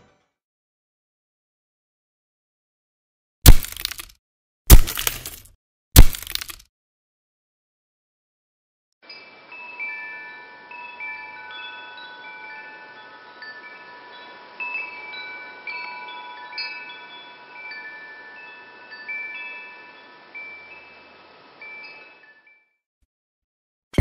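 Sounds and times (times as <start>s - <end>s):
wind chimes ringing: 9.0s - 22.7s.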